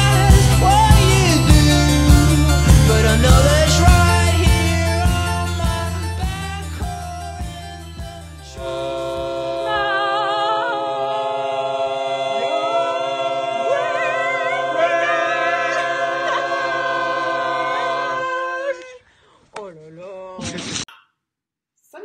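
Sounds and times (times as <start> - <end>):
group singing a long chord: 8.5 - 19.0.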